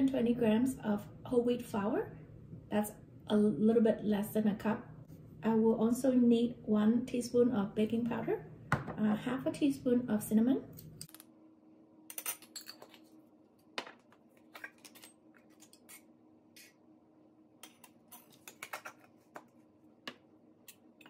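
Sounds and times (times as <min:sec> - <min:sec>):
faint steady hum: 0:00.0 - 0:21.0
metal spoon clinking on containers: 0:12.1 - 0:13.1.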